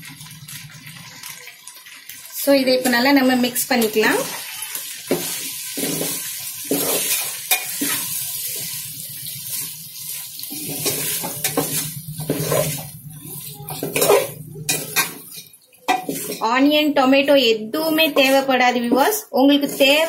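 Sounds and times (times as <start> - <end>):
gravy sizzling in oil: 0.0 - 20.0
ladle scraping metal pot: 5.1 - 8.8, 10.4 - 16.6, 17.8 - 20.0.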